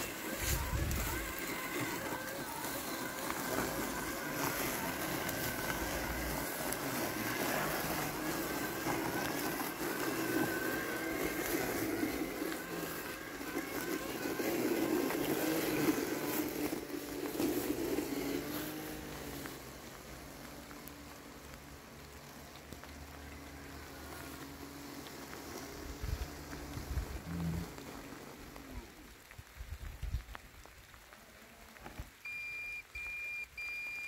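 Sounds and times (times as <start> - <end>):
robotic lawn mower motor whine: 0.0 - 30.2.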